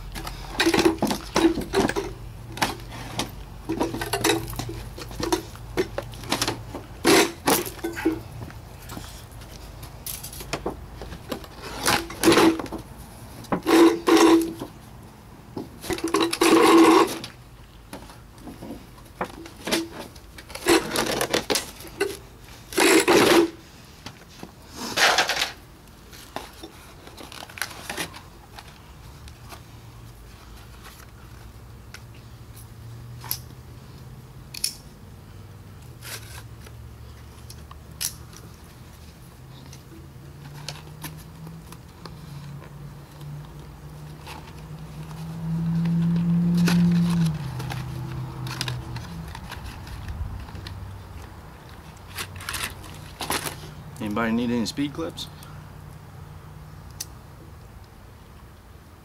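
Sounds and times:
sheet metal crinkling and scraping: 0:00.0 - 0:14.9, 0:15.6 - 0:17.4, 0:18.0 - 0:28.9, 0:44.0 - 0:53.8.

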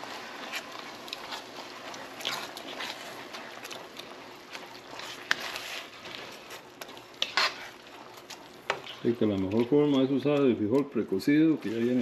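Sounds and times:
sauce sizzling: 0:00.0 - 0:12.0.

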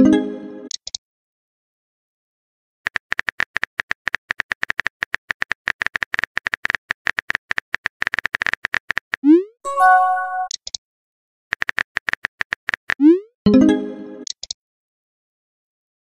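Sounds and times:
phone keyboard typing clicks: 0:02.9 - 0:09.2, 0:11.5 - 0:13.0.

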